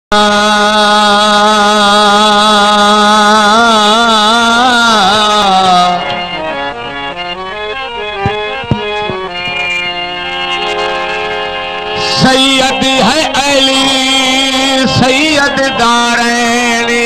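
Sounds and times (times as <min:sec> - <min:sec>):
harmonium melody: 0:00.1 - 0:17.0
short knocks: 0:08.1 - 0:10.0
sung note with vibrato: 0:08.3 - 0:11.4.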